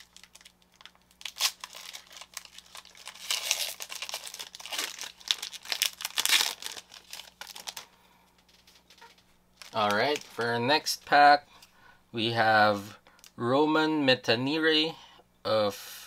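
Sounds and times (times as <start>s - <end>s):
wrapper tearing and crinkling: 0.0s - 10.5s.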